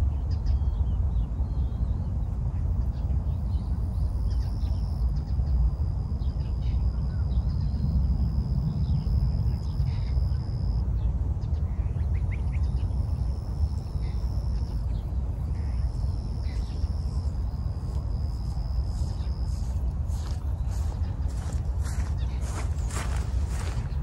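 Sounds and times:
steady low rumble: 0.0 - 24.0
high insect trill: 12.4 - 24.0.

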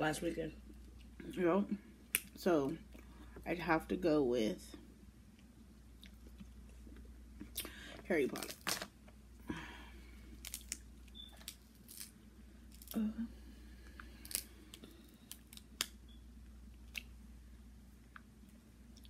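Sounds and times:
low hum: 0.0 - 19.0
shells cracking and peeling: 8.4 - 9.0, 10.4 - 13.0, 13.8 - 16.0.

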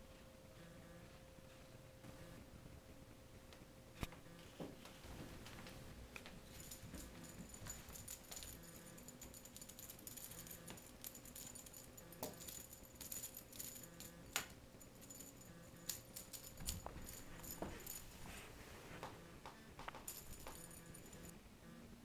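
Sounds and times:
wand toy jingling: 6.5 - 18.3, 20.1 - 21.3.

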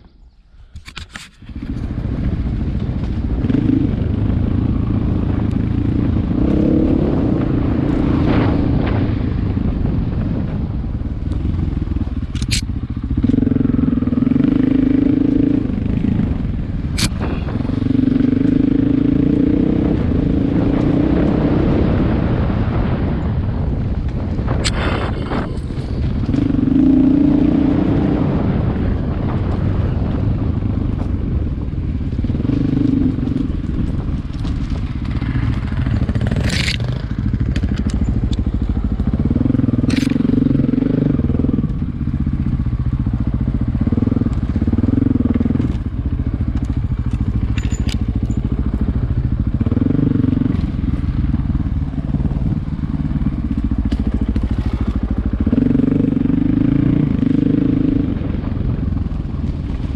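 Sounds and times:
engine running with throttle surging: 0.0 - 59.9
sharp clicks and knocks: 12.2 - 12.7, 46.5 - 48.5.

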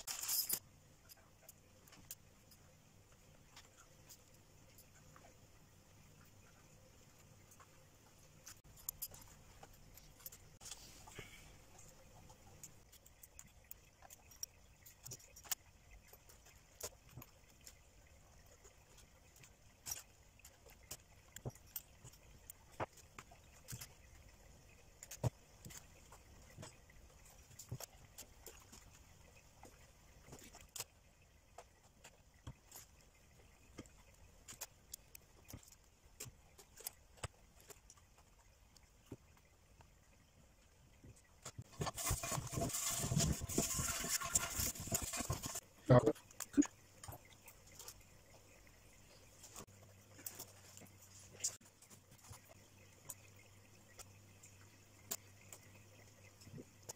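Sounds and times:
small tools clicking and clinking: 0.0 - 2.2.

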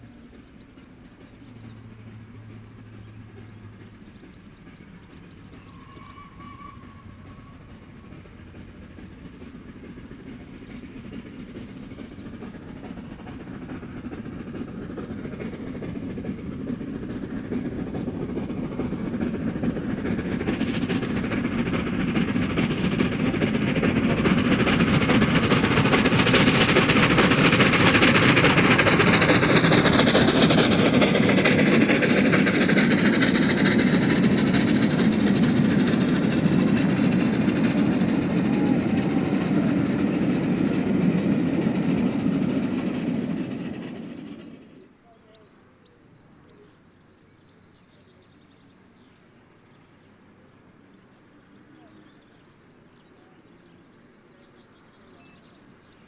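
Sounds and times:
steam locomotive under steam: 0.0 - 56.0
steam whistle: 5.7 - 7.7.

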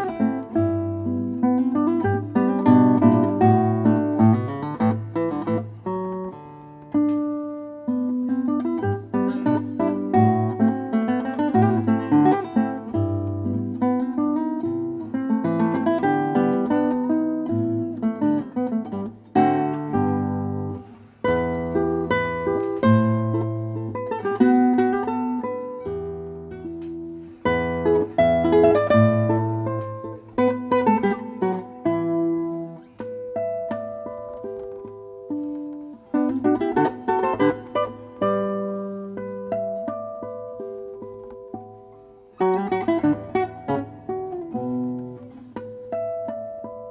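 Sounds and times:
classical guitar fingerstyle: 0.0 - 46.9.

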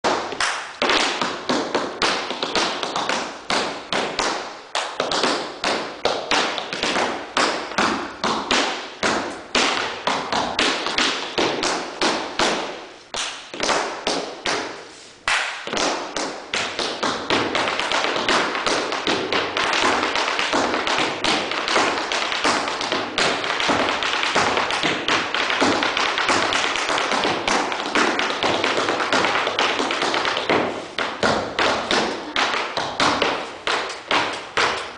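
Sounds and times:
tap shoes on hardwood floor: 15.6 - 34.9.

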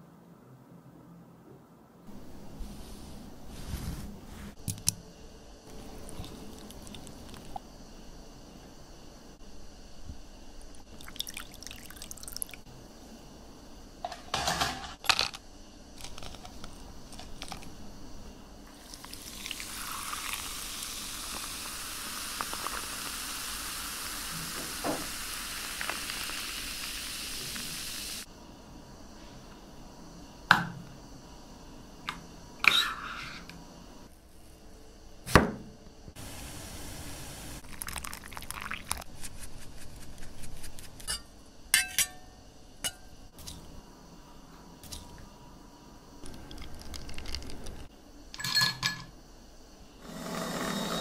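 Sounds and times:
sparkling water fizzing: 10.7 - 12.7, 18.7 - 28.3, 36.2 - 39.2.

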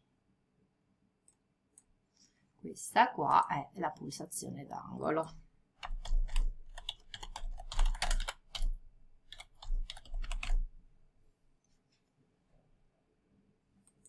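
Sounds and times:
typing on keyboard: 5.8 - 10.8.

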